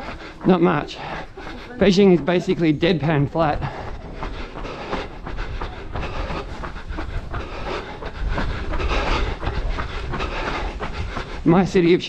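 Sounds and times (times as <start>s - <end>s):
running footsteps on pavement: 0.0s - 12.0s
wind rumble on microphone: 5.2s - 11.5s.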